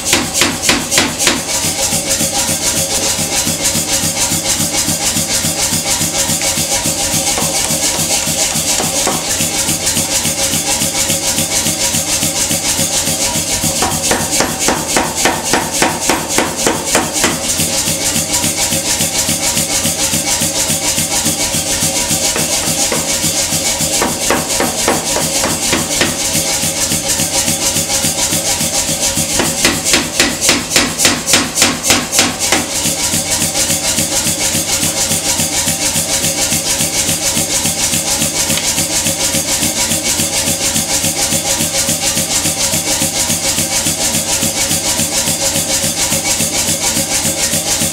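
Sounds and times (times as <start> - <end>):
power hammer striking hot steel: 0.0 - 2.2, 5.4 - 11.5, 13.6 - 34.6.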